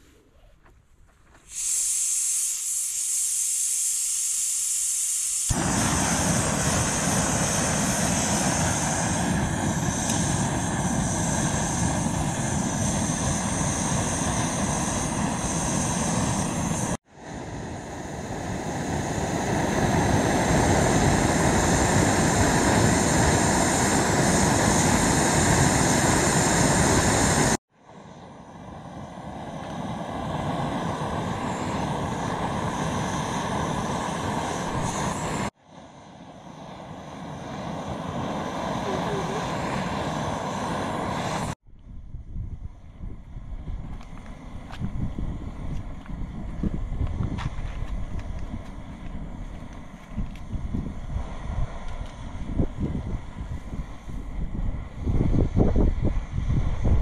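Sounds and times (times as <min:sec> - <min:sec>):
gas hissing from valve: 0:01.3 - 0:17.0
gas burner roaring: 0:01.4 - 0:41.6, 0:43.5 - 0:57.0.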